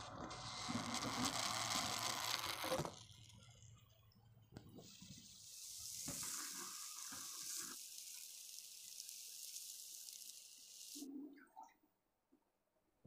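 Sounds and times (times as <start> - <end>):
water draining through hose: 4.5 - 11.6.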